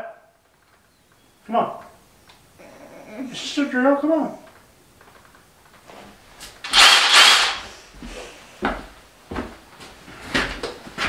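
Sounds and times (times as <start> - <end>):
loud hiss: 6.6 - 8.4
footsteps in rubber boots: 7.6 - 11.0.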